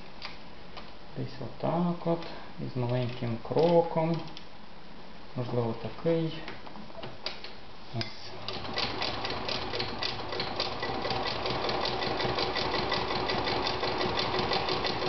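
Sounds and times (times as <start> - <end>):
sewing machine running: 8.4 - 15.0.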